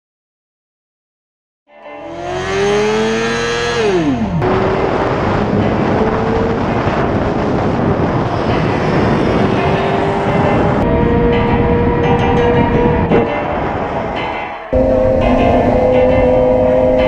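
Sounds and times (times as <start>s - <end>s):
motorcycle engine revving: 2.0s - 14.1s, 14.7s - 17.0s
wind noise: 2.1s - 17.0s.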